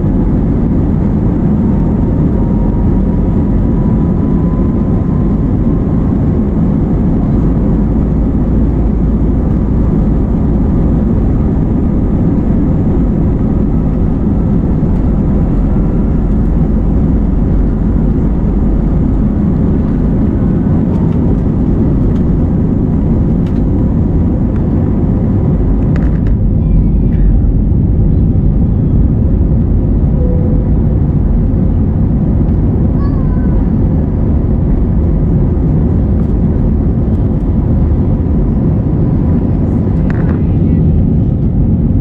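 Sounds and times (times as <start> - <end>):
vehicle rumbling: 0.0 - 42.0.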